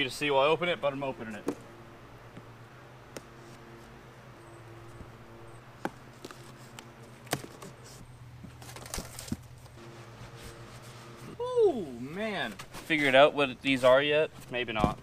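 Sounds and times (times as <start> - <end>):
faint steady hum: 0.0 - 15.0
cardboard scraping: 5.8 - 11.4.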